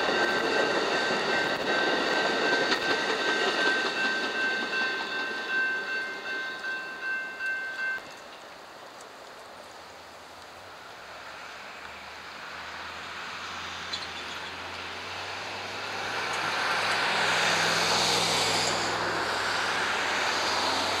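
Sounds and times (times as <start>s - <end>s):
vehicles driving past: 10.8s - 21.0s.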